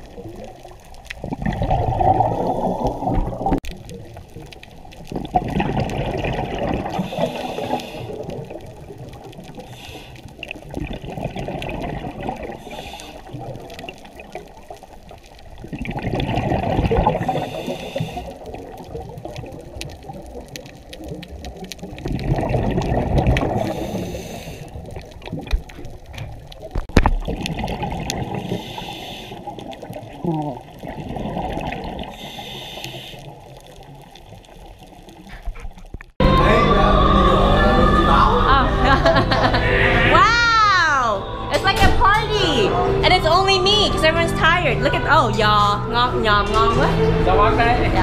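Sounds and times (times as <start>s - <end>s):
exhaled bubbles gurgling underwater: 0.0s - 36.4s
underwater wash of water: 0.0s - 48.0s.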